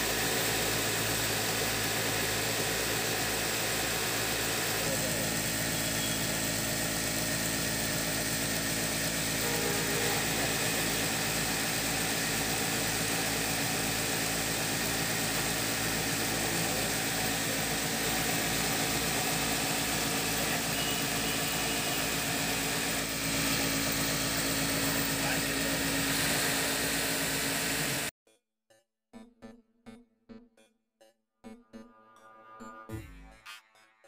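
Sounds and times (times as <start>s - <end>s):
sewing machine running: 0.0s - 28.1s.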